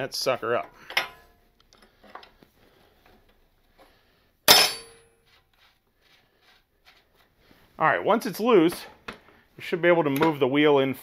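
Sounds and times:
metallic clang with ring: 4.5s - 5.1s.

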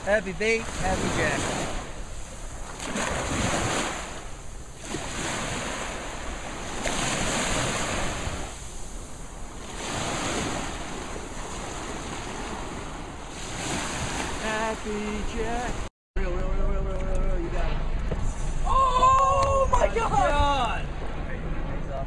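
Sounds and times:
small waves on sandy beach: 0.0s - 15.9s
wind buffeting microphone: 0.0s - 15.9s.

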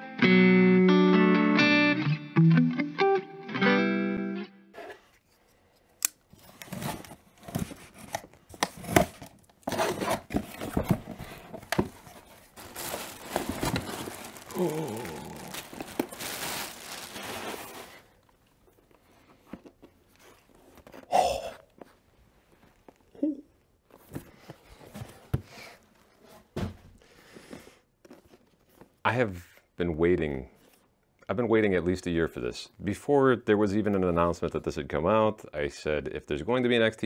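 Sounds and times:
plastic packing crinkling: 8.9s - 18.4s
cardboard tape tearing: 12.5s - 18.2s.

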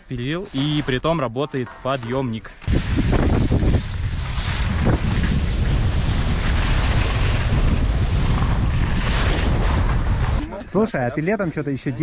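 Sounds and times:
wind buffeting microphone: 2.6s - 11.1s.

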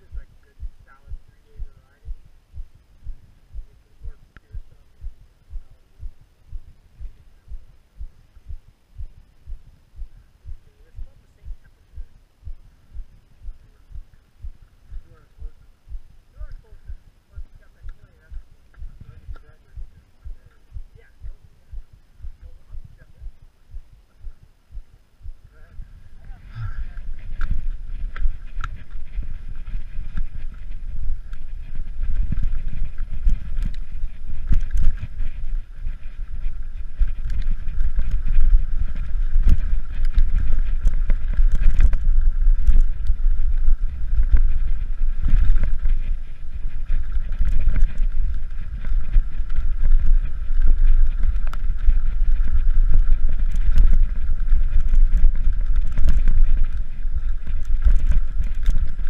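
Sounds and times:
wind buffeting microphone: 0.0s - 59.0s
bike tyre rumble: 25.3s - 59.0s
bike clicking and rattling: 27.2s - 59.0s.

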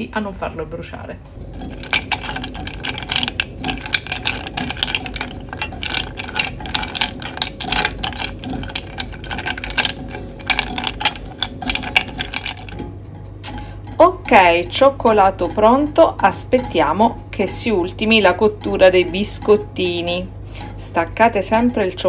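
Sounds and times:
steady low hum: 0.0s - 22.0s
chocolate pieces scraping in pan: 1.6s - 12.9s.

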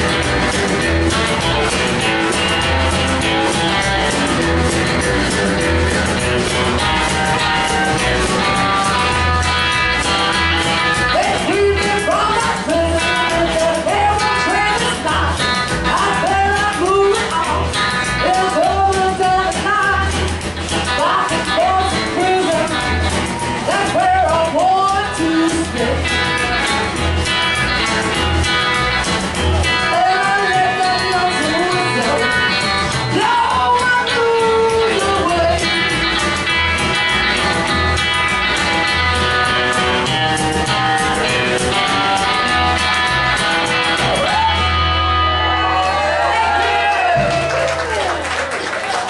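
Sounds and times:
drums: 0.0s - 49.0s
electric guitar: 0.0s - 49.0s
upright double bass: 0.0s - 49.0s
woman singing: 11.0s - 26.2s, 29.7s - 36.2s.

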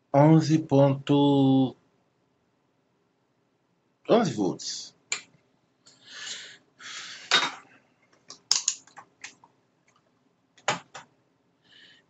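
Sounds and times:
small clicks and taps: 8.1s - 11.1s.

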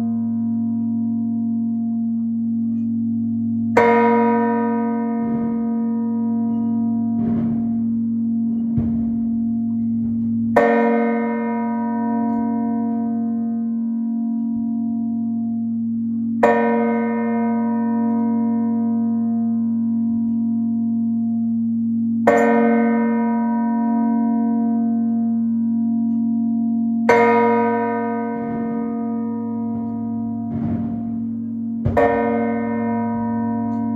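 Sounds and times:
church bell ringing: 0.0s - 33.9s
faint bell clangs: 3.8s - 13.4s.

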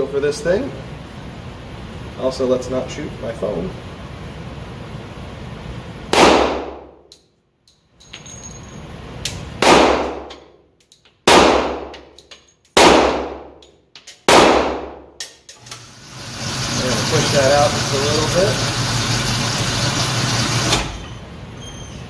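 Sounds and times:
pistol shots echoing: 6.1s - 6.9s, 9.6s - 10.4s, 11.3s - 12.1s, 12.8s - 13.6s, 14.3s - 15.2s.

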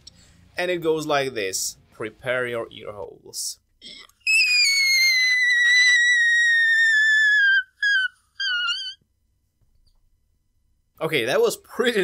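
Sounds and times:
man's falsetto screech: 4.2s - 9.0s.

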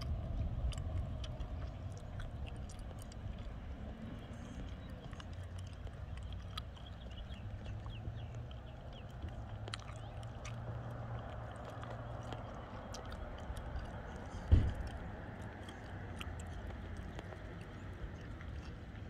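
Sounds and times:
low street rumble: 0.0s - 19.0s
low thump: 14.4s - 15.0s.

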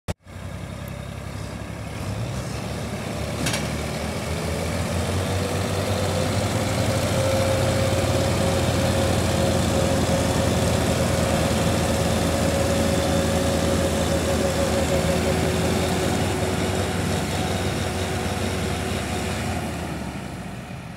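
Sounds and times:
tractor engines under heavy load: 0.1s - 20.9s.

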